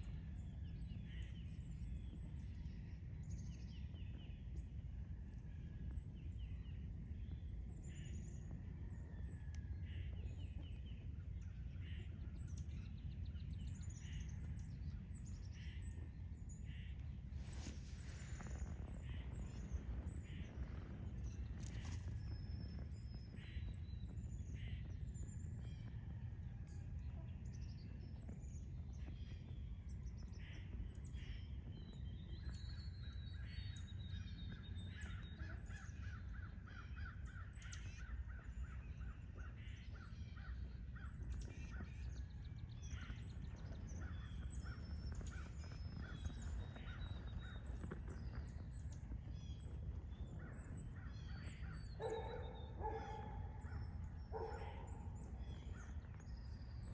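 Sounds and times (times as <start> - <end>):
birds chirping and calling: 42.9 - 56.9.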